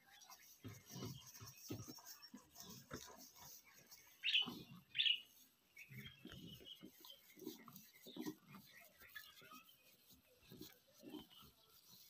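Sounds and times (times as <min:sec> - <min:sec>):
high bird chirps: 0:03.9 - 0:08.0
cow munching straw: 0:05.8 - 0:11.8.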